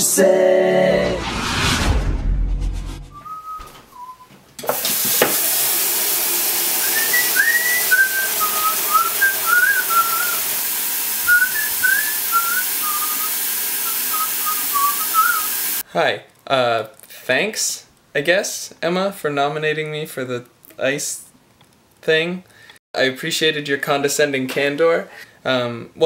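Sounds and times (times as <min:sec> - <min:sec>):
man whistling a tune: 0:03.1 - 0:04.3, 0:06.8 - 0:10.4, 0:11.3 - 0:15.5
tap water pouring into plastic bucket: 0:04.7 - 0:15.8.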